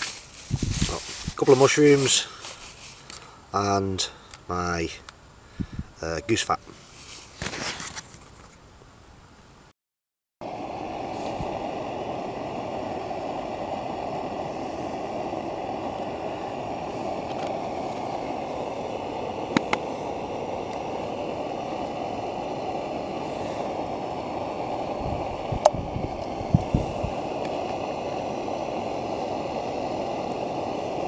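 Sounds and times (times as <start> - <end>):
gas stove burner rushing: 10.4 - 31.0.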